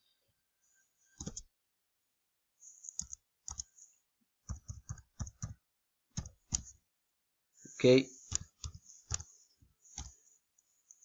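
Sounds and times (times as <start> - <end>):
keyboard keystrokes: 1.2 - 1.5, 4.5 - 5.6, 6.2 - 6.7.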